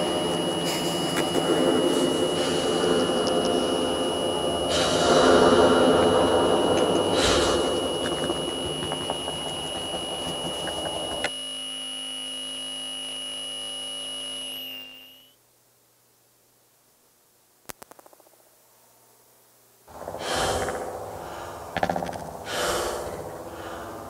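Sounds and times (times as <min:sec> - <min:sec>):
dense noise wash: 0:00.0 - 0:10.2, 0:19.9 - 0:24.0
low hum: 0:00.0 - 0:15.3, 0:19.9 - 0:24.0
steady high tone: 0:00.0 - 0:15.4.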